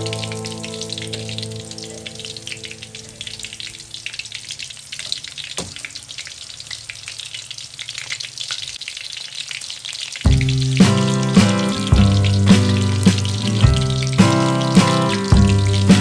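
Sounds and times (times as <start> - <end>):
loud music: 0.0 - 1.8, 10.3 - 16.0
food deep-frying in oil: 0.0 - 16.0.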